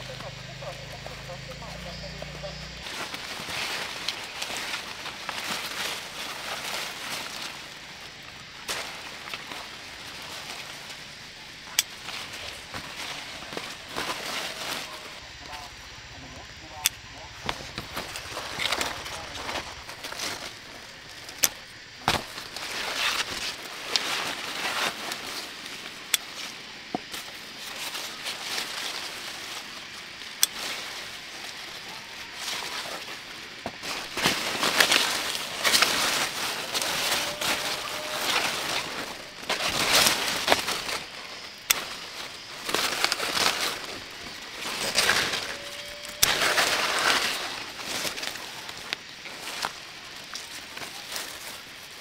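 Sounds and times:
garden plants rustling: 0:00.0 - 0:52.0
scissors snipping stems: 0:11.7 - 0:12.9, 0:30.4 - 0:30.7, 0:41.6 - 0:42.1.

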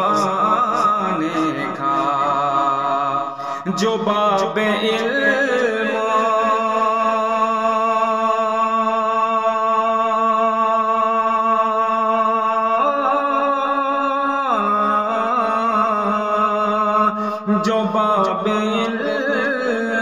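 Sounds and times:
man singing a held note: 0:00.0 - 0:06.6.

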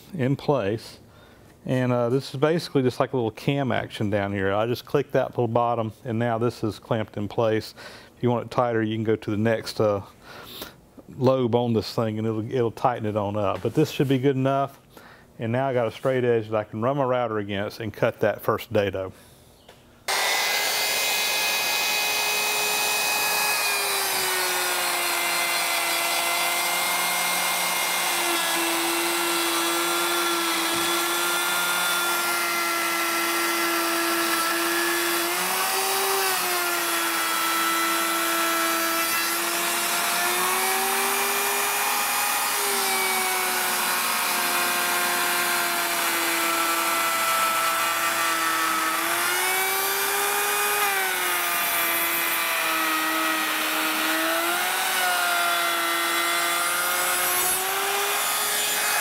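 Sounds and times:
electric router cutting wood: 0:20.1 - 0:59.0.

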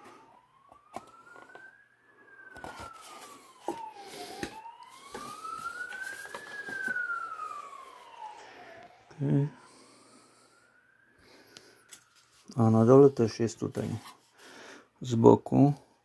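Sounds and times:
cardboard packaging rustling: 0:00.0 - 0:08.3, 0:13.6 - 0:14.4
siren wailing: 0:00.0 - 0:14.3.

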